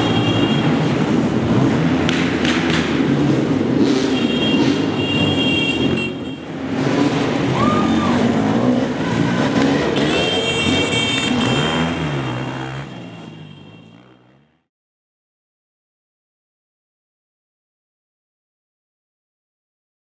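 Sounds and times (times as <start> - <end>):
dirt bike engines revving: 0.0 - 14.4.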